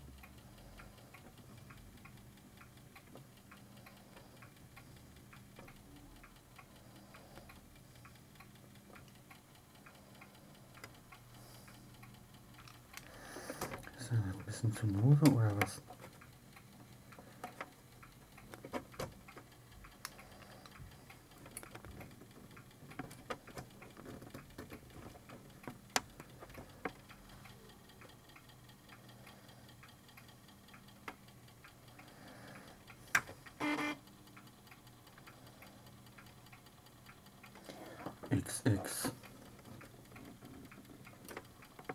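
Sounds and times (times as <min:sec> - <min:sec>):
floppy drive stepper clicks: 0:33.0 - 0:34.0.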